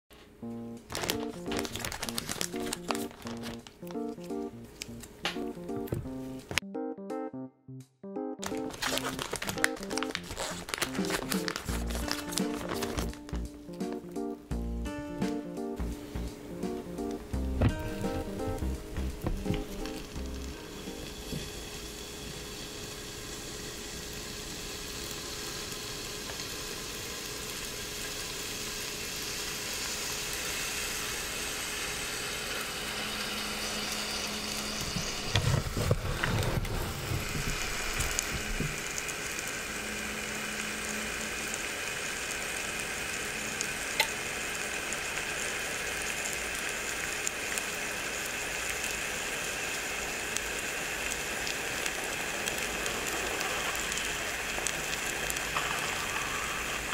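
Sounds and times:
dough sizzling and crackling: 0:00.2 - 0:06.6, 0:08.4 - 0:56.9
waffle maker rotating clatter: 0:19.2 - 0:45.1, 0:51.2 - 0:56.9.

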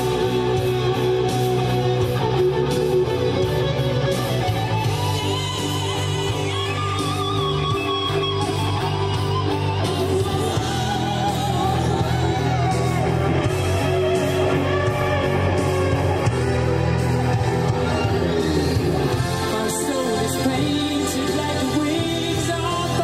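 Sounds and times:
song with singing over guitar: 0:00.0 - 0:23.0.

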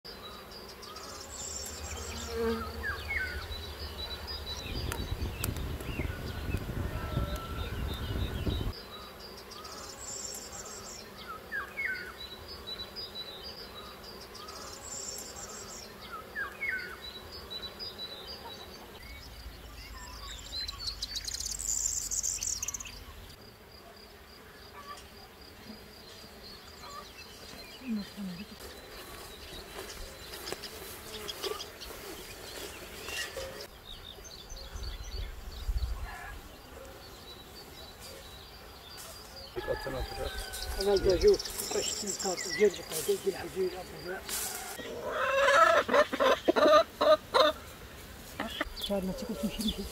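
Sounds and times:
birds chirping: 0:00.1 - 0:23.4, 0:24.6 - 0:49.9
insects buzzing: 0:00.1 - 0:49.9
high insect drone: 0:36.5 - 0:45.8.

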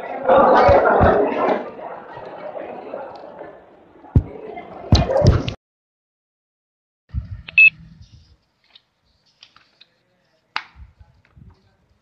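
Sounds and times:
electronic beep: 0:07.5 - 0:07.8.

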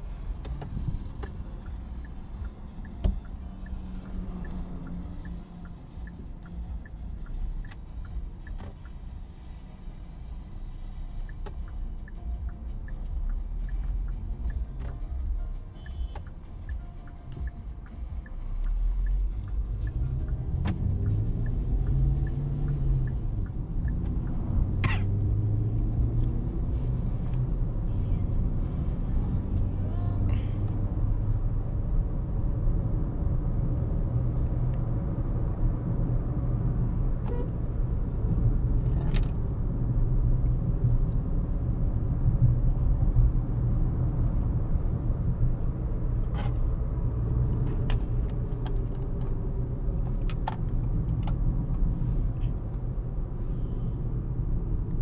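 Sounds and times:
car engine running: 0:00.0 - 0:31.2
road noise: 0:00.0 - 0:55.0.

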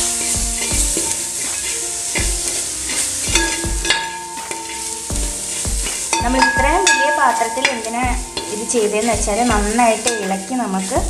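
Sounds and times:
food sizzling: 0:00.0 - 0:11.0
metal spatula scraping a pot: 0:00.0 - 0:11.0
spatula knocking against pot: 0:03.2 - 0:04.5.

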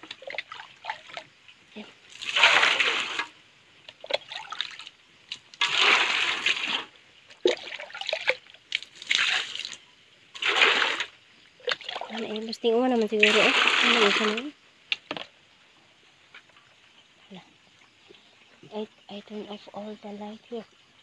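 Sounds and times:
water dripping: 0:00.0 - 0:15.3
water sloshing in a basin: 0:00.0 - 0:15.3.

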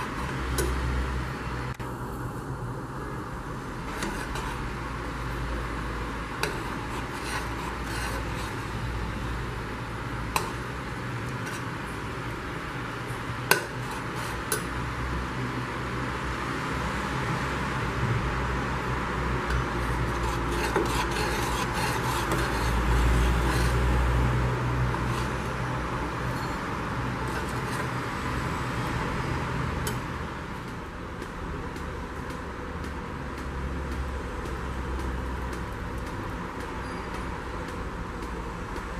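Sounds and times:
steady hiss and hum: 0:00.0 - 0:38.9
spoon stirring pudding in pot: 0:03.8 - 0:12.7, 0:13.5 - 0:14.8, 0:19.4 - 0:28.5.

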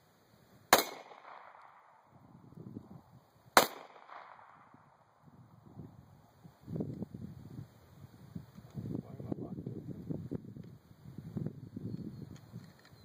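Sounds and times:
pistol shots with echo: 0:00.7 - 0:02.1, 0:03.6 - 0:05.1.

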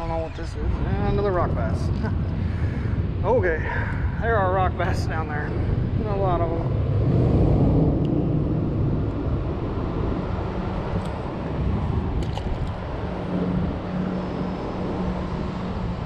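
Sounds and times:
road traffic rumble: 0:00.0 - 0:16.0.

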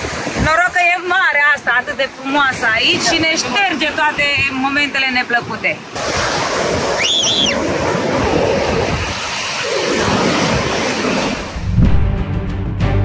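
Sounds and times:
sea waves washing on beach: 0:00.0 - 0:11.7
background music: 0:11.6 - 0:13.0.

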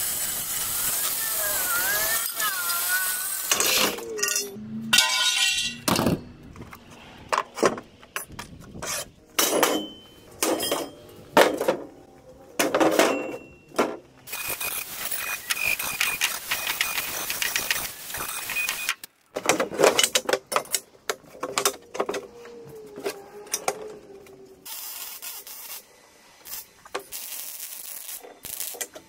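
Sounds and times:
band saw cutting steel: 0:00.0 - 0:05.1
metallic clanks of steel pieces: 0:03.5 - 0:06.4, 0:07.4 - 0:11.8, 0:12.6 - 0:15.2.

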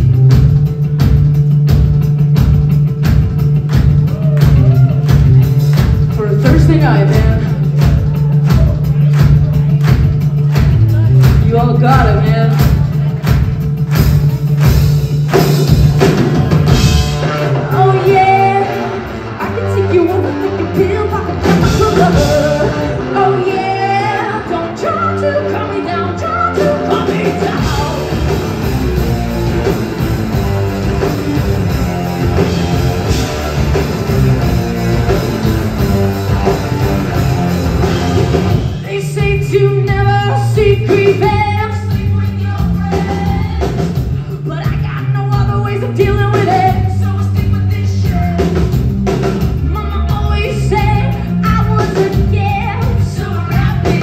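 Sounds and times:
rock band playing: 0:00.0 - 0:54.0
woman singing: 0:10.5 - 0:13.4, 0:17.5 - 0:28.4, 0:38.6 - 0:48.8, 0:49.4 - 0:54.0.

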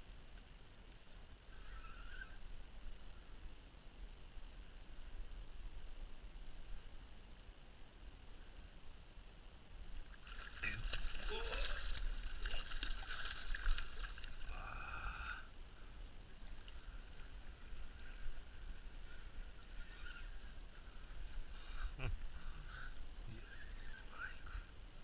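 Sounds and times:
light water sounds: 0:09.8 - 0:14.6
fish thrashing and splashing: 0:10.2 - 0:14.5.

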